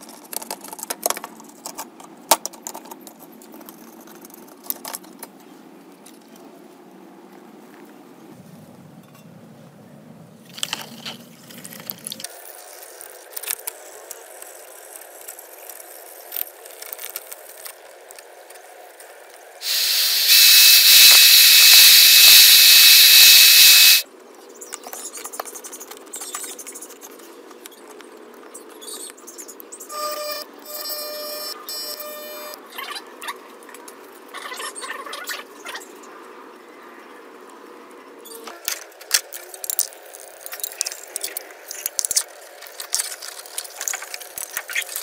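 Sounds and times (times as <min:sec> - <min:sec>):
jet hiss with whistle: 0:19.6 - 0:24.0.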